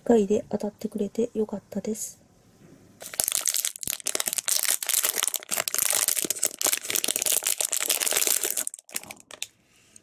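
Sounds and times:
plastic bag crinkling: 0:03.0 - 0:09.5.

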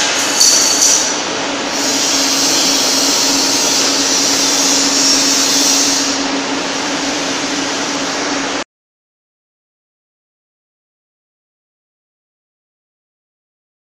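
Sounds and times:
low machine hum: 0:00.0 - 0:08.6
welding machine hissing: 0:00.0 - 0:08.6.

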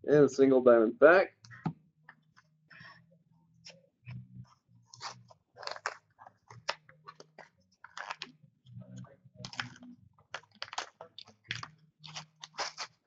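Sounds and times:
wrapper crinkling: 0:05.0 - 0:08.3, 0:09.4 - 0:13.0
cards shuffling: 0:05.0 - 0:08.4, 0:09.4 - 0:13.0.

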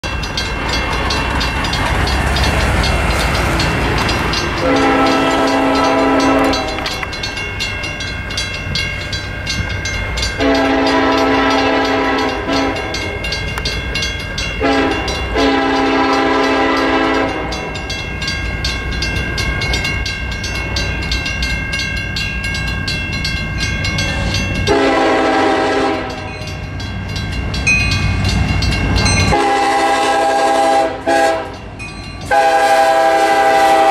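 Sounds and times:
crossing bell ringing: 0:00.0 - 0:33.9
locomotive horn blasts: 0:04.6 - 0:07.1, 0:10.4 - 0:13.1, 0:14.6 - 0:17.8, 0:24.7 - 0:26.5, 0:29.3 - 0:31.6, 0:32.3 - 0:33.9.

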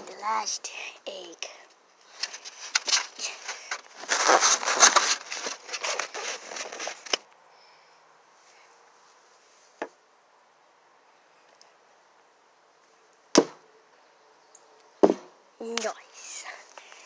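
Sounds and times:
plastic egg carton crackling: 0:02.1 - 0:07.2.

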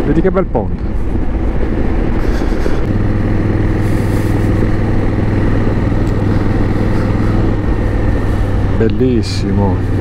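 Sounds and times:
rushing noise: 0:00.9 - 0:08.8
motorcycle engine running: 0:00.9 - 0:10.0.

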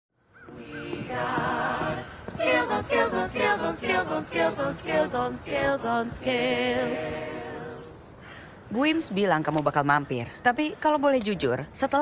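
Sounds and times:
young choir singing a cappella: 0:00.5 - 0:08.2.

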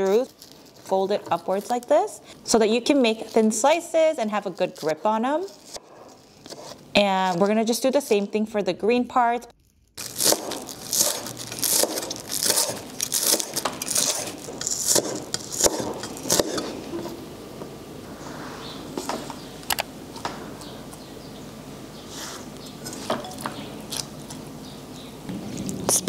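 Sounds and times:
knife chopping on wooden board: 0:10.2 - 0:16.8.

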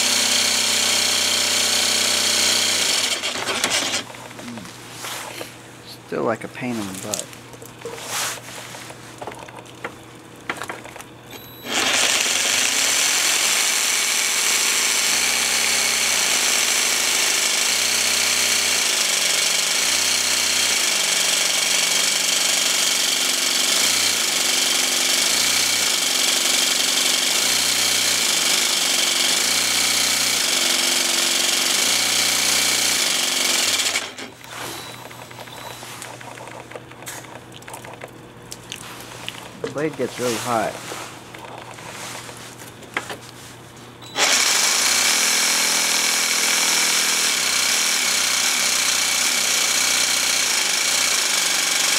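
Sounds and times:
jigsaw cutting through tile: 0:00.0 - 0:04.1, 0:11.6 - 0:36.5, 0:44.1 - 0:51.9.

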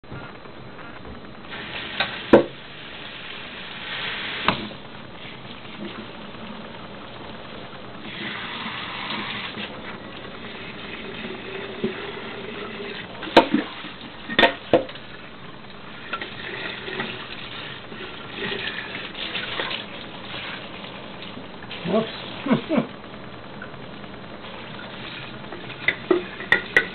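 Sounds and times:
faucet water running into sink: 0:08.0 - 0:15.3, 0:15.9 - 0:22.9, 0:24.5 - 0:26.9.

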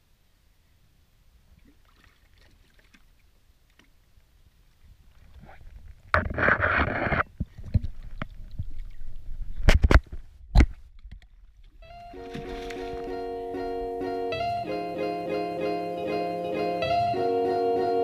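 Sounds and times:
water splashing and sloshing: 0:01.5 - 0:04.3, 0:11.0 - 0:13.2
loud splash: 0:12.1 - 0:13.2.

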